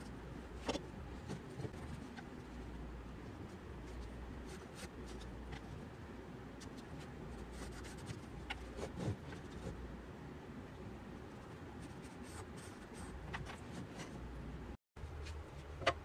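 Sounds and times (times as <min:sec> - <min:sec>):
low steady hum: 0:00.0 - 0:16.0
pencil scratching on wood: 0:06.6 - 0:09.8.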